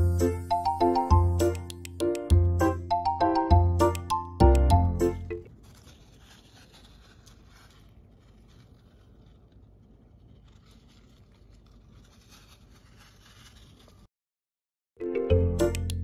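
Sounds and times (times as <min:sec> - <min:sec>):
hamster digging in sand: 0:05.5 - 0:14.1.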